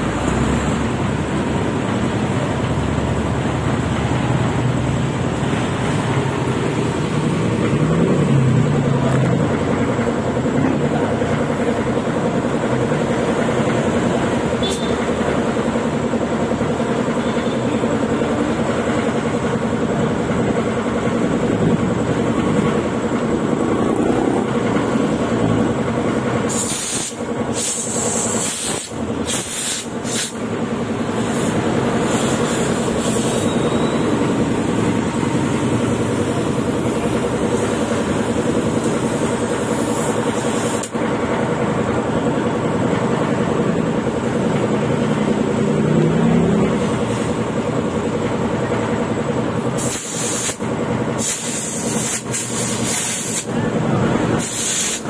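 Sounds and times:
compressed air hissing: 26.5s - 30.4s, 31.0s - 33.6s, 37.6s - 41.0s, 49.8s - 53.5s, 54.4s - 55.0s.

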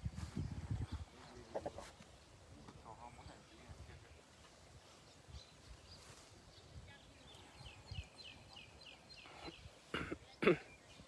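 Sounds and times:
small bird chirping: 2.9s - 11.0s.

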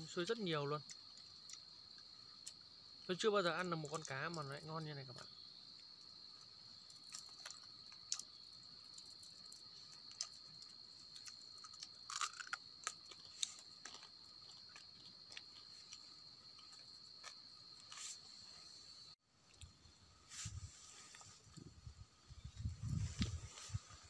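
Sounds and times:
person chewing: 6.9s - 18.0s.

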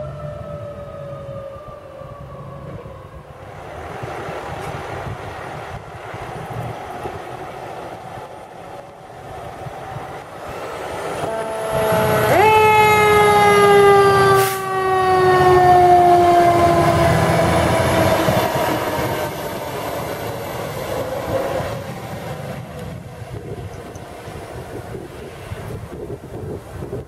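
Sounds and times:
diesel engine rumbling: 0.0s - 27.0s
loud warning tone sinking in pitch: 11.2s - 18.5s.

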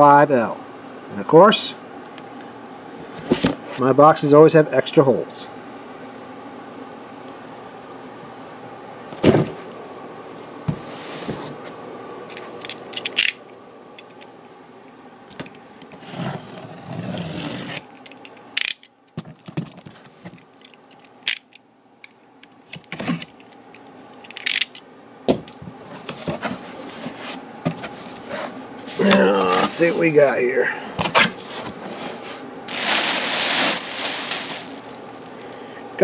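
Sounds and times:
cardboard flaps rustling: 25.7s - 29.0s, 31.0s - 35.0s.

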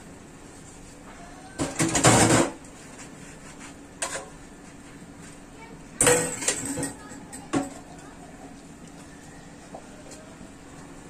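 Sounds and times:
steel pots clattering in sink: 6.0s - 7.8s.

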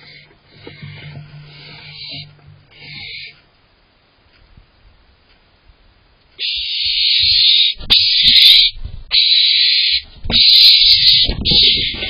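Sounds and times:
owl shrieking: 0.0s - 3.4s, 6.4s - 12.0s.

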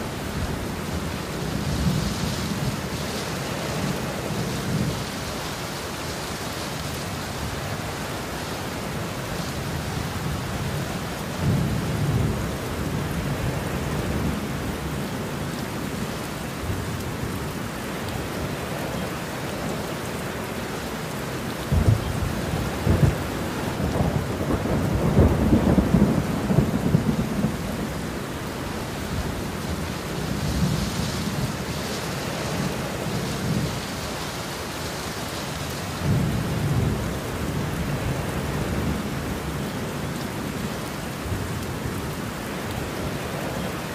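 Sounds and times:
heavy rain: 0.0s - 43.9s
thunder rumbling: 21.7s - 31.6s.

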